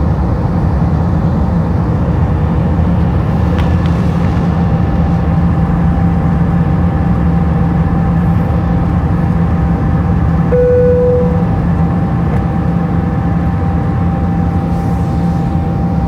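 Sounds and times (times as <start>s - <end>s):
airplane cabin rumble: 0.0s - 16.0s
short clear tone: 10.5s - 11.5s.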